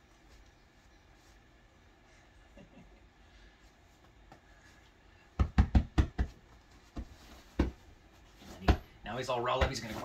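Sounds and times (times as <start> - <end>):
soft taps and rustles on bedspread: 6.2 - 8.9.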